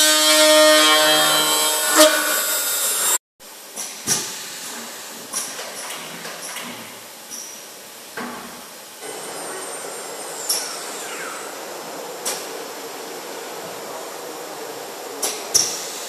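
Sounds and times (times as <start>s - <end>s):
falling machine whine: 0.0s - 3.2s, 9.0s - 16.0s
steady machine whir: 9.0s - 16.0s.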